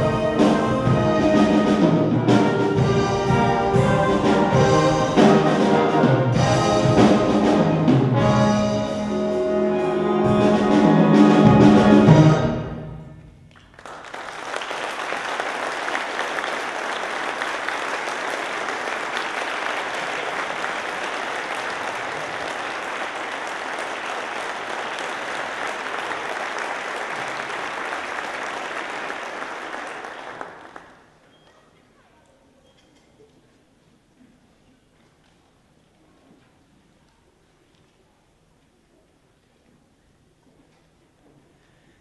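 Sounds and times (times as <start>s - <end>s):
audience applauding: 13.5s - 31.2s.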